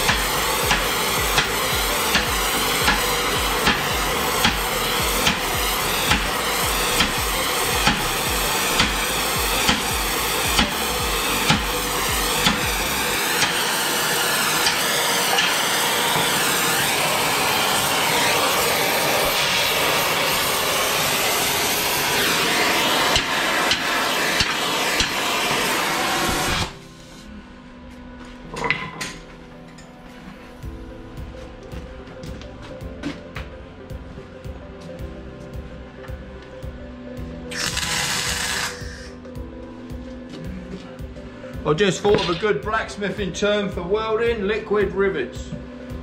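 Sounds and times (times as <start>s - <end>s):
gas torch hissing: 0.0s - 27.3s, 37.5s - 39.5s.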